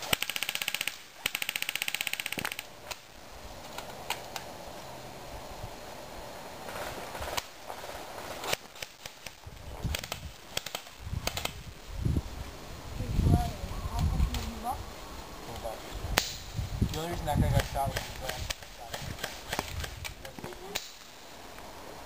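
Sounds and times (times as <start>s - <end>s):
airsoft gun firing bursts: 0.0s - 2.6s
single sharp gunshot cracks: 16.2s - 16.5s.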